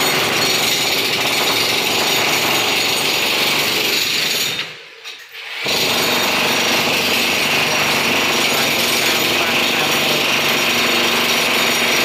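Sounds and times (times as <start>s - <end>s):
loud machine noise: 5.5s - 12.0s.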